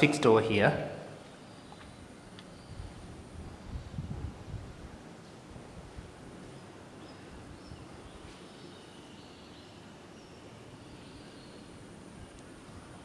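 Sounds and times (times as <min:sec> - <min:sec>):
faint background noise: 0:00.0 - 0:13.0
birds chirping: 0:06.5 - 0:12.5.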